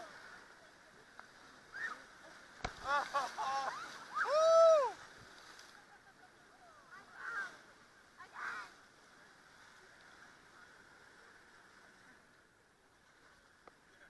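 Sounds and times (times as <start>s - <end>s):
whitewater rapids rushing: 1.4s - 5.3s
muffled whoops and shouts: 3.4s - 5.0s.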